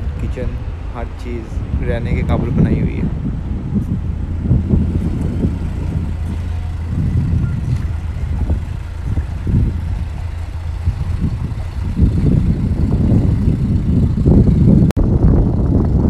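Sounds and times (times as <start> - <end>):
low engine hum: 0.0 - 16.0
wind rumble on microphone: 0.0 - 16.0.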